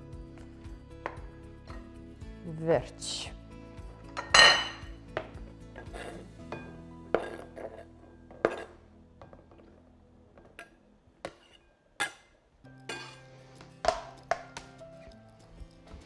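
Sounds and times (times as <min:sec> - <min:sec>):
soft background music: 0:00.0 - 0:16.0
knife scraping cutting board: 0:05.8 - 0:06.3.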